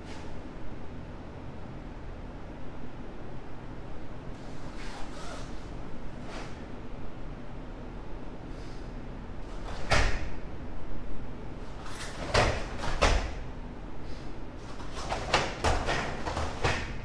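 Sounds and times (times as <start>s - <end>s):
bare feet hitting foam mats: 11.8s - 13.4s, 14.6s - 17.0s.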